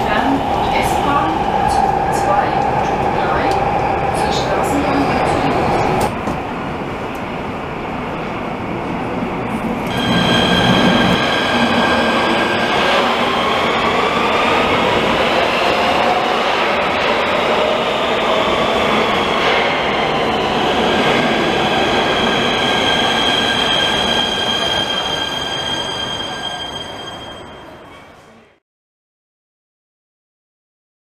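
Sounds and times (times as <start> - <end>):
metro train rumble and wheel noise: 0.0 - 28.6.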